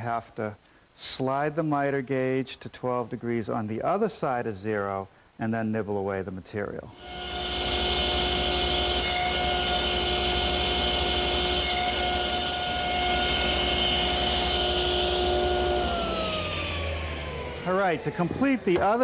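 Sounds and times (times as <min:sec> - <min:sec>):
saw blade cutting wood: 0:07.0 - 0:17.1
table saw motor whine: 0:07.0 - 0:19.0.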